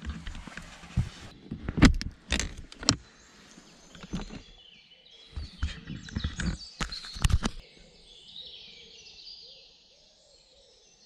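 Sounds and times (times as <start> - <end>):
sharp knocks and clicks: 0.0 - 3.0, 5.4 - 7.6
rustling: 0.0 - 4.6.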